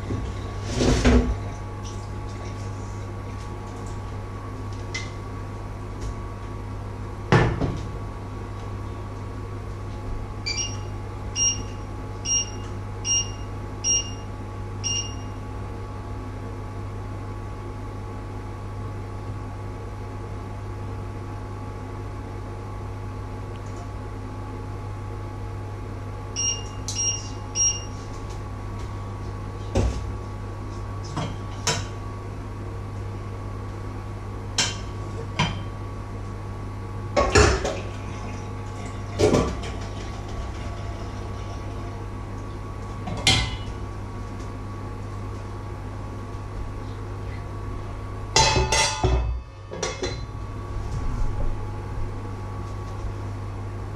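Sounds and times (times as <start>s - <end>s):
steady electrical hum: 0.0s - 53.9s
metal pots and lids clattering: 48.4s - 50.2s.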